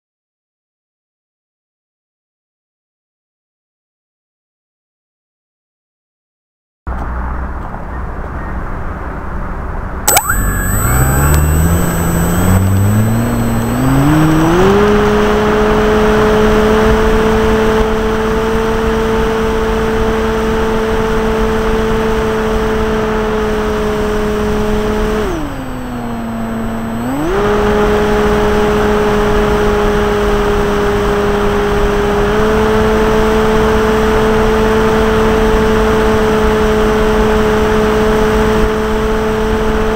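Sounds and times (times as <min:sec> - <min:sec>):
electric motor and propeller whine: 0:10.3 - 0:39.9.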